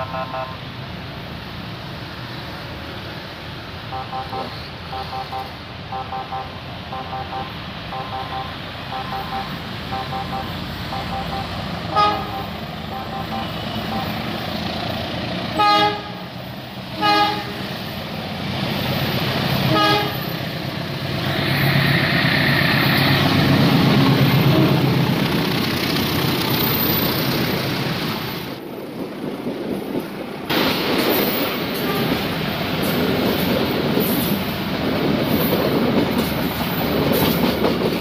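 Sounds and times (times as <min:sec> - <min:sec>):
locomotive horn blasts: 0:00.0 - 0:00.6, 0:03.9 - 0:14.3, 0:15.5 - 0:16.3, 0:16.9 - 0:17.7, 0:19.7 - 0:20.3, 0:24.4 - 0:24.8, 0:31.8 - 0:32.2
train coaches clattering on rails: 0:06.8 - 0:38.0.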